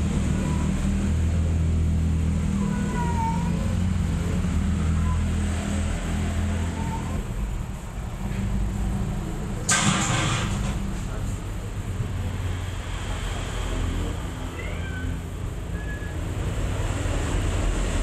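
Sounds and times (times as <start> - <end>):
kitten mewing: 2.5 - 3.8, 6.6 - 7.3, 14.5 - 16.1
brief noisy burst: 9.7 - 10.7.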